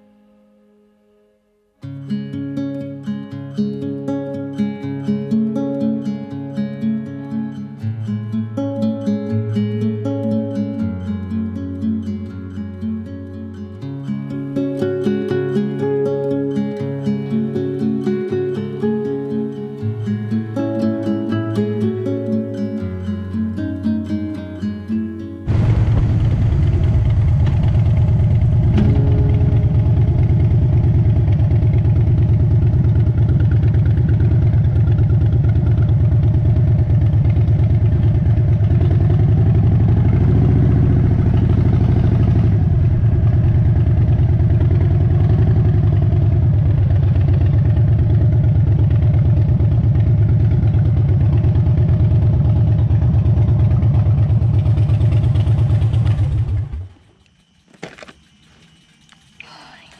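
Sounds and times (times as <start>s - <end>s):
motorcycle engine running: 25.5s - 59.3s.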